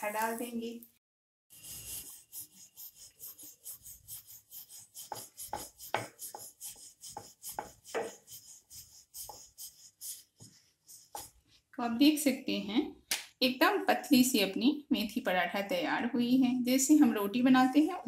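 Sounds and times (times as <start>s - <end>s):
rolling pin rubbing over dough: 1.5s - 11.6s.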